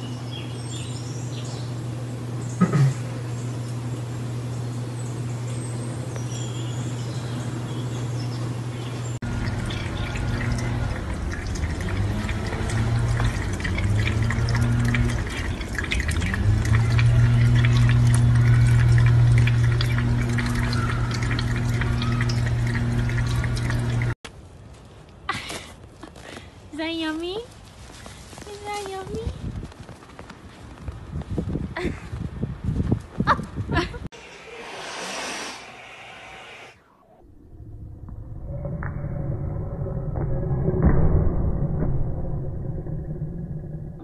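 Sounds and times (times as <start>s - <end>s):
low hum: 0.0s - 24.2s, 34.0s - 44.0s
cat lapping water: 9.2s - 24.2s.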